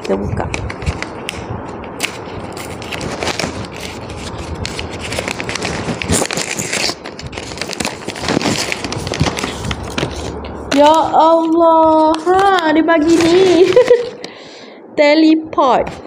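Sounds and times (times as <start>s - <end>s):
wrapping paper tearing and crinkling: 1.9s - 14.2s.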